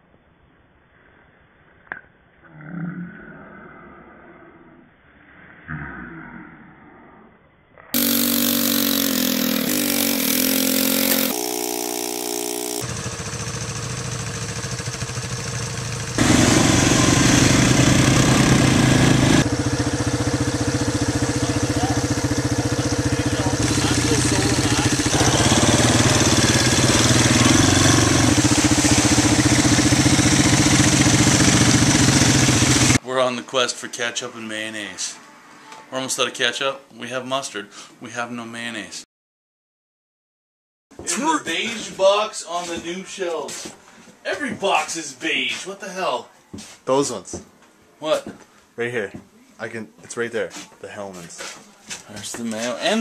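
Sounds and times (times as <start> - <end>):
atv engine revving: 8.0 - 33.0.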